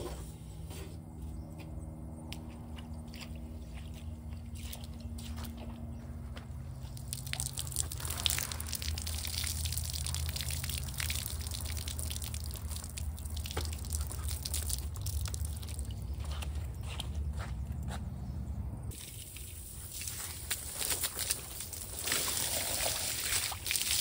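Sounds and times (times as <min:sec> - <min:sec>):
steady low hum: 0:00.0 - 0:23.6
water dripping: 0:06.8 - 0:16.2
water splattering onto concrete: 0:06.9 - 0:16.1, 0:18.9 - 0:24.0.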